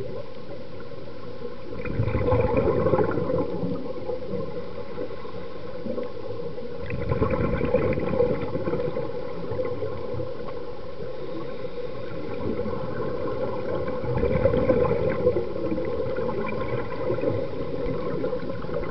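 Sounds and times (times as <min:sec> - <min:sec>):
underwater bubbles gurgling: 0:00.0 - 0:18.9.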